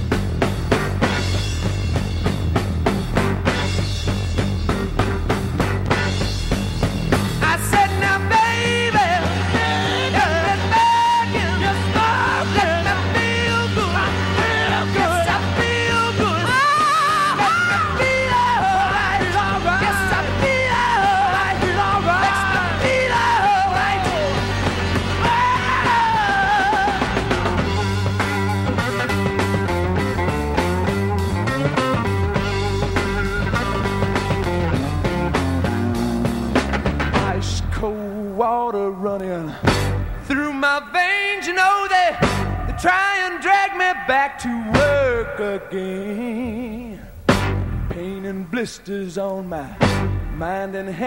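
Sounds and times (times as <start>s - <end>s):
heavy rock band playing live: 0.0s - 38.0s, 39.5s - 45.7s, 47.0s - 48.1s, 49.8s - 50.9s
wordless wailing vocals: 7.5s - 27.9s, 40.3s - 47.2s.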